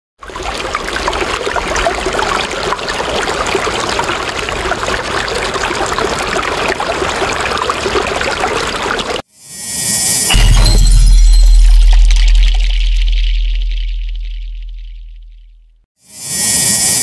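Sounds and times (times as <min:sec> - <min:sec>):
trickling bubbling noise with crackles: 0:00.2 - 0:09.2.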